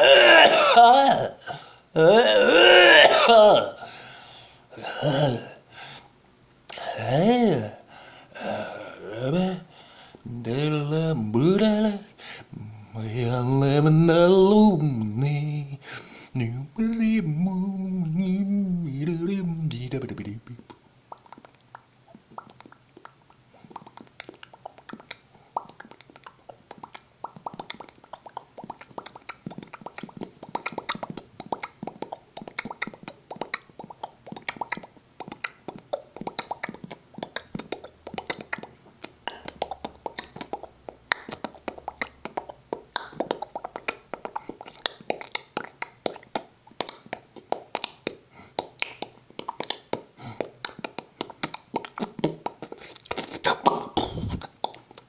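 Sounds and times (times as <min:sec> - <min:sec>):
man beatboxing: 0:10.3 - 0:12.1, 0:13.0 - 0:15.8, 0:16.4 - 0:55.0.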